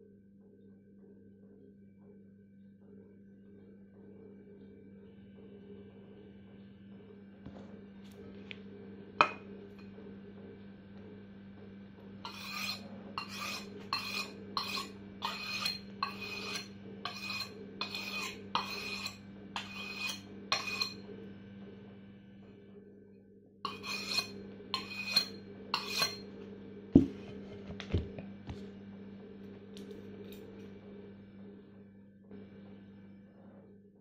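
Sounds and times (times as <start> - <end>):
knife rasping on ceramic: 12.2 - 21.0, 23.7 - 26.3.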